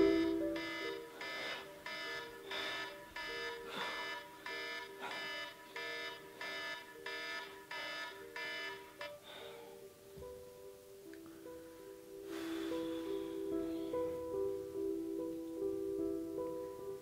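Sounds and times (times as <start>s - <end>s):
electronic alarm chime: 0.0s - 9.1s.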